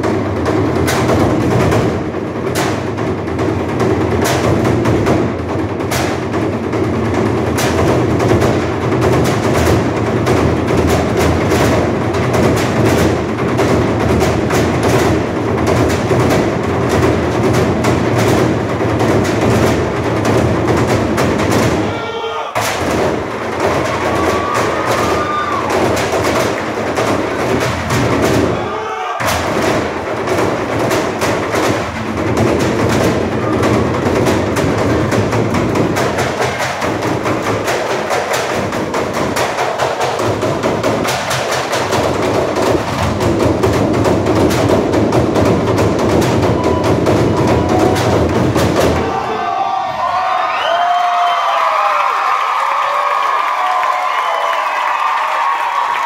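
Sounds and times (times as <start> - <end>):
drumming on barrels: 0.0 - 56.0
audience shouting and cheering: 21.8 - 26.1, 28.4 - 29.4, 46.4 - 56.0.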